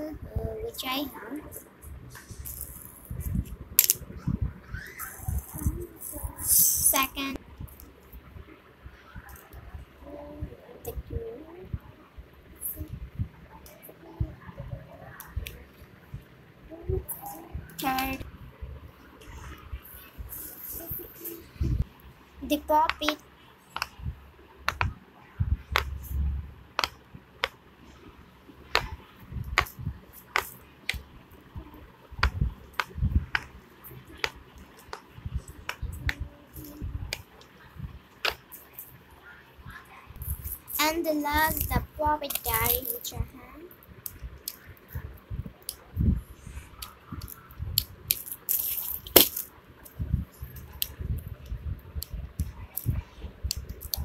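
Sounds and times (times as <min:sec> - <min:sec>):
plastic toy clicking and rattling: 0:40.5 - 0:43.2.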